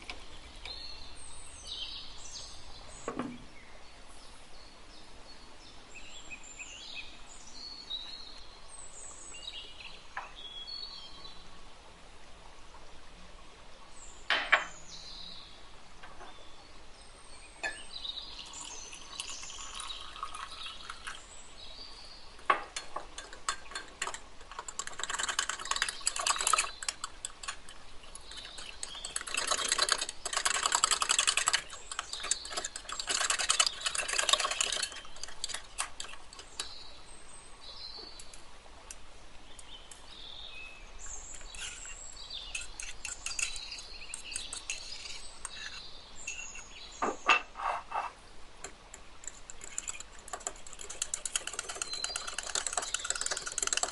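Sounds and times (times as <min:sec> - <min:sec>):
metal spoon stirring in ceramic cup: 0:18.4 - 0:21.2, 0:22.7 - 0:36.8, 0:41.4 - 0:46.7, 0:49.2 - 0:53.9.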